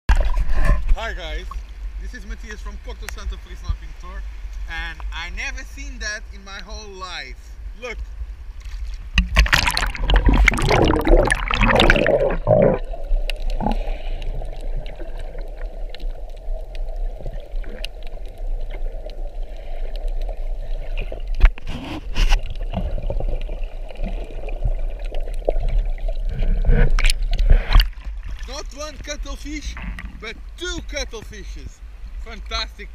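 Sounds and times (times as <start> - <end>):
water splashing and bubbling: 0.1 - 2.0, 8.5 - 30.5
muffled underwater wash: 0.1 - 30.6
sharp knocks underwater: 8.6 - 16.2, 20.9 - 28.5.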